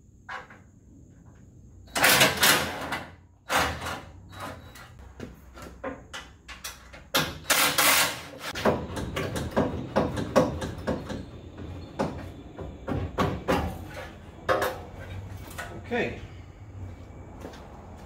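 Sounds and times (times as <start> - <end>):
metal knocks clanks and scrapes: 2.0 - 15.9.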